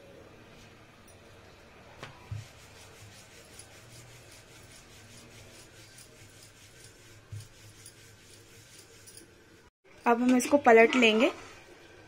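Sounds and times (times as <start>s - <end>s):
rolling pin rubbing on dough: 2.2s - 9.3s.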